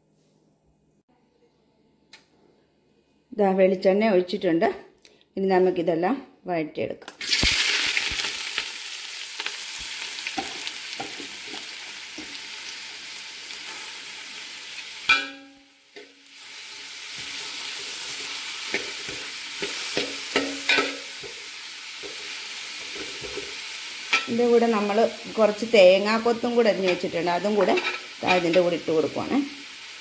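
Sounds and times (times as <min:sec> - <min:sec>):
onions sizzling in hot oil: 0:07.2 - 0:30.0
spoon scraping metal pan: 0:26.7 - 0:28.8.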